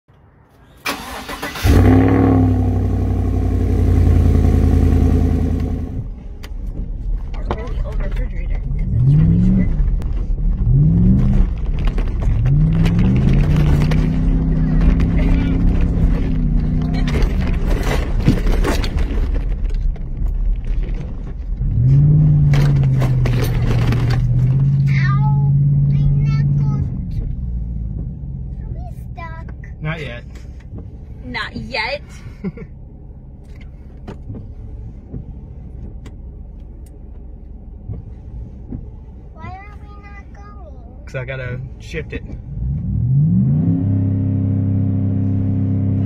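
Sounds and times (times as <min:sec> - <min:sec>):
engine and tyre rumble: 0:00.1 - 0:46.0
rattles and clicks: 0:06.4 - 0:24.9.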